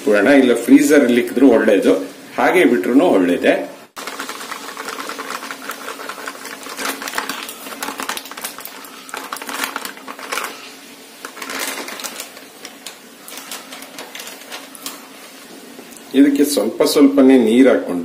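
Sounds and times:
plastic packet crackling: 0:04.0 - 0:15.2.

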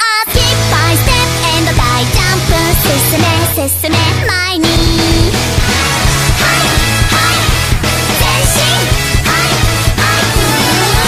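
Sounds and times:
young woman singing: 0:00.0 - 0:05.4
pop-rock band backing: 0:00.3 - 0:11.0.

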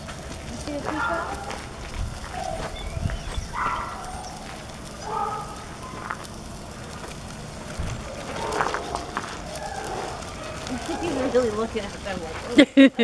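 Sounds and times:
footsteps on gritty road: 0:00.0 - 0:12.7
stroller wheels rolling on road: 0:00.0 - 0:13.0
short high squeaky tones: 0:02.4 - 0:04.4.

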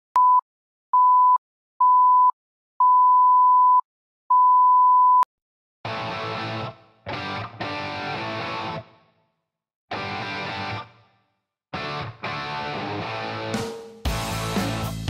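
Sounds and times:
music: 0:05.9 - 0:09.0, 0:09.9 - 0:11.0, 0:11.8 - 0:15.0.

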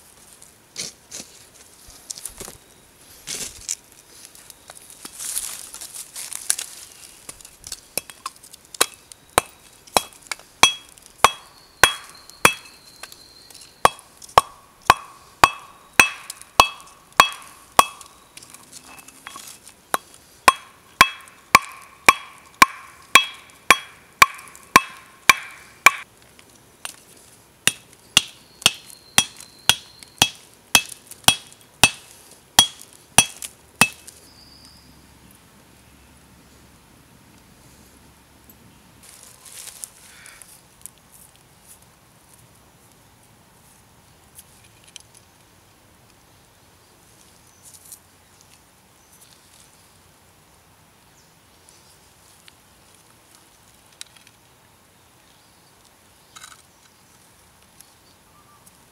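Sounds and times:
stone striking slag on anvil: 0:08.8 - 0:12.8, 0:13.9 - 0:18.1, 0:20.5 - 0:26.0, 0:27.7 - 0:34.0.

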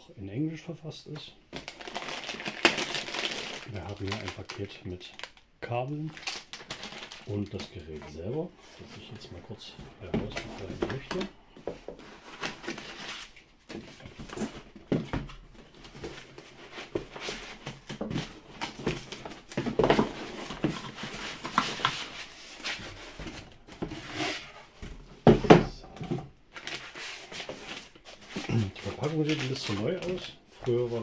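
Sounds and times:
foam scraping and rustling: 0:26.8 - 0:31.0.

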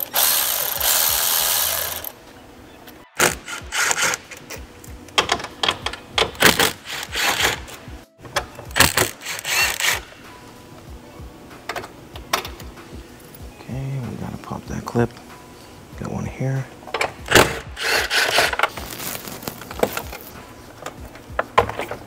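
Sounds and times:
cordless ratchet running: 0:00.0 - 0:02.1, 0:08.8 - 0:10.0
clicking and rattling of parts: 0:03.2 - 0:10.0, 0:11.7 - 0:12.7, 0:16.9 - 0:22.0.

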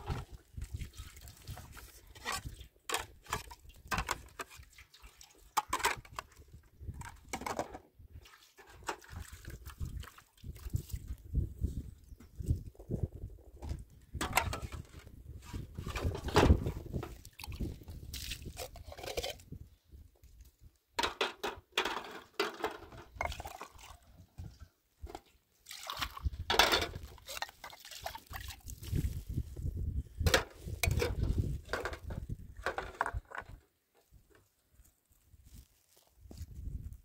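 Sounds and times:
water splashing and running: 0:00.0 - 0:06.2, 0:08.1 - 0:11.3, 0:15.8 - 0:19.2, 0:23.1 - 0:29.5.

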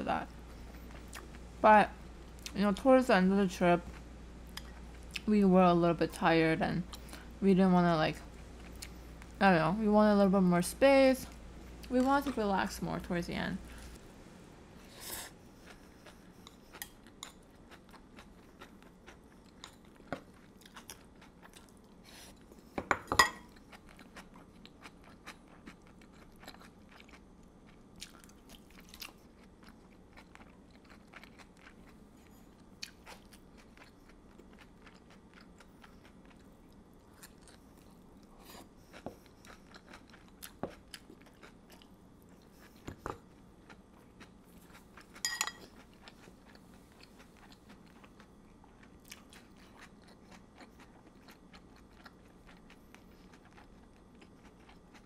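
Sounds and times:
chewing and soft crunches: 0:00.2 - 0:01.5, 0:08.2 - 0:09.4, 0:15.3 - 0:22.8, 0:23.4 - 0:55.0.

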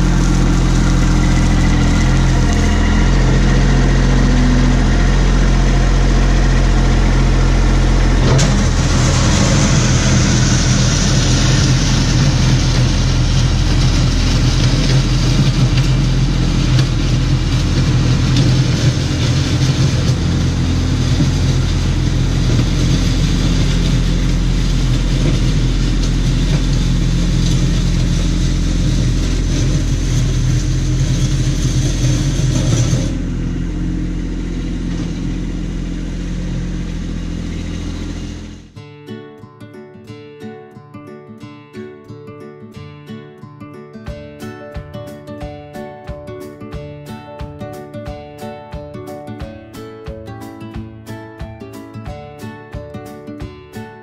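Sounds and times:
tyres on loose gravel: 0:00.0 - 0:38.6
tractor diesel engine running: 0:00.0 - 0:38.8.

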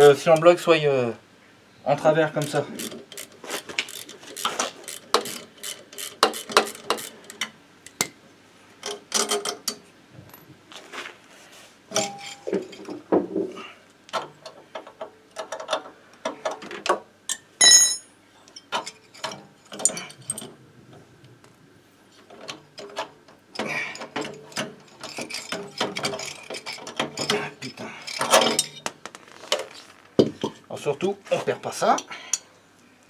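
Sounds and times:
metal tools clicking and rattling: 0:02.4 - 0:08.0, 0:11.9 - 0:13.0, 0:17.3 - 0:20.6, 0:22.4 - 0:29.7
loud ringing metallic clink: 0:17.6 - 0:18.1.

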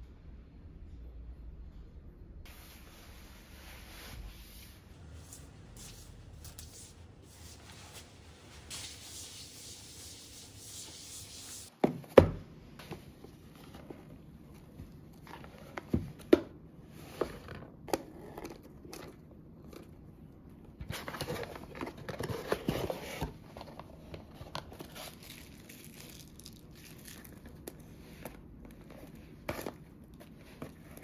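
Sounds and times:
hand rubbing on tiled floor: 0:02.5 - 0:11.7.

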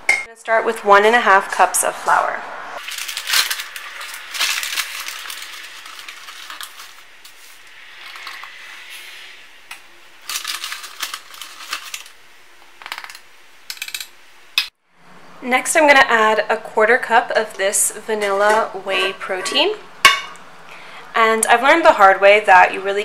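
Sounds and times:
paper bag crinkling: 0:02.8 - 0:08.5, 0:10.2 - 0:12.2.

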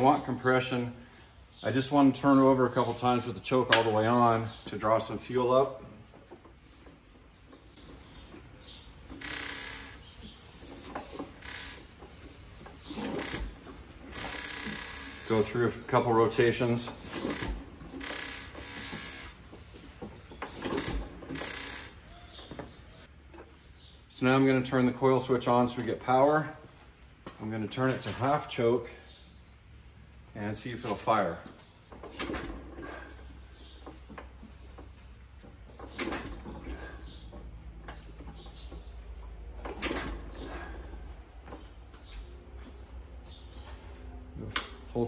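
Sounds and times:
engine clicks and squeaks: 0:02.5 - 0:23.9, 0:30.8 - 0:45.0.

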